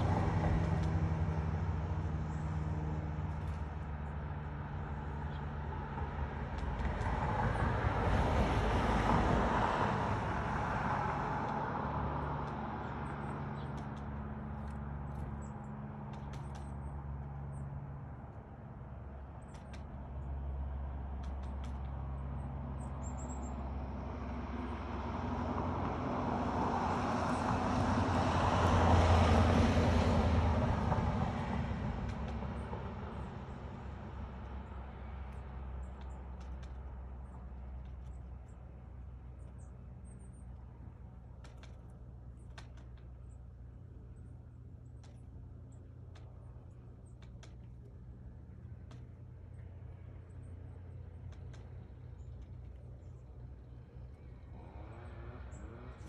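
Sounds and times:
vehicle passing: 0.0s - 16.1s, 20.0s - 39.4s, 53.3s - 56.0s
low engine hum: 0.0s - 56.0s
faint clicks: 16.1s - 16.8s, 19.4s - 20.1s, 35.2s - 38.4s, 40.4s - 43.5s, 44.9s - 47.9s, 48.5s - 53.3s.

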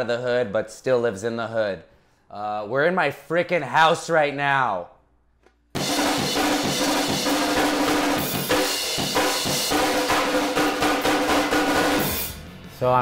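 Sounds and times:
drum kit music: 5.7s - 13.0s.

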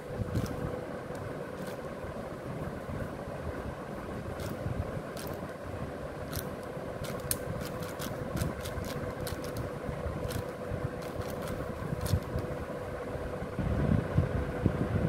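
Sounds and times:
steady background hum: 0.0s - 15.0s
plastic puzzle cube clicks: 5.2s - 5.4s, 6.3s - 9.6s.

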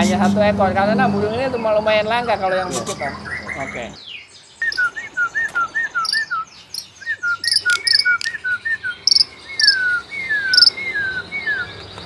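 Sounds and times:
songbirds whistling: 2.3s - 12.0s
high bird chirps: 3.3s - 5.3s, 5.9s - 10.9s.

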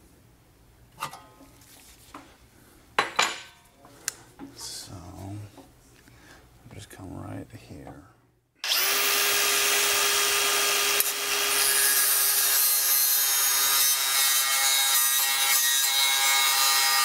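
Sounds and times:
angle grinder cutting sheet steel: 8.6s - 17.0s.

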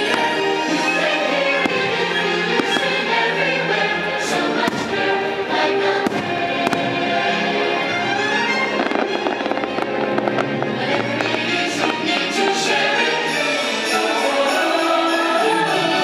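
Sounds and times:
fireworks bangs: 0.0s - 3.2s, 4.6s - 7.5s, 8.1s - 12.8s
orchestral and choral music: 0.0s - 16.0s.

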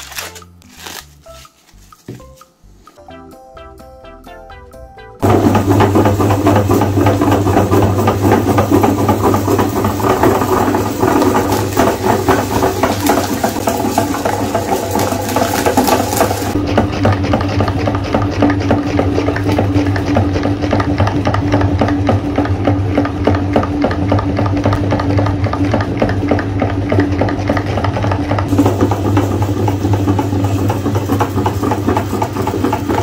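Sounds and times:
cookies crunching in grinder: 0.0s - 1.6s, 5.2s - 26.2s
meat grinder motor hum: 5.2s - 33.0s.

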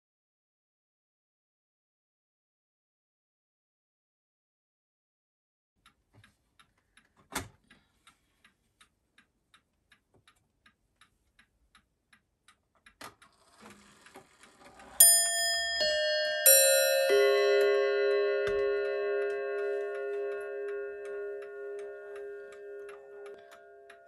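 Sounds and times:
mantel clock ticking: 5.8s - 24.0s
light scraping of clock hands: 13.1s - 15.7s
clock chime bells ringing: 15.0s - 24.0s.

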